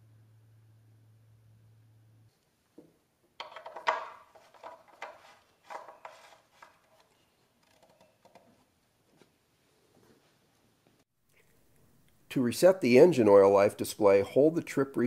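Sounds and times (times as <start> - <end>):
faint low hum: 0.0 - 3.2.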